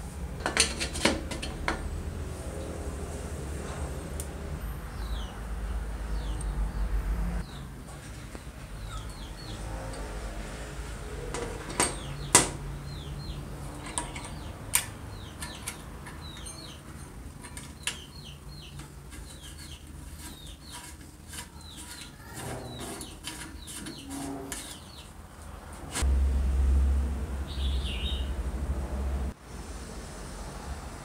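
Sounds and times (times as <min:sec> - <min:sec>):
small birds chirping: 0:04.6 - 0:10.1, 0:11.6 - 0:26.0, 0:27.4 - 0:28.4.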